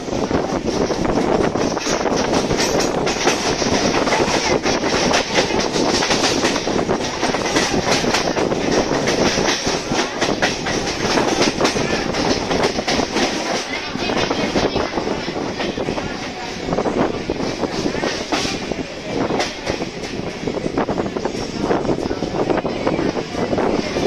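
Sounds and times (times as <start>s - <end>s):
train wheel and wind rush: 0.0s - 24.0s
wheels clicking over rail joints: 0.6s - 16.8s.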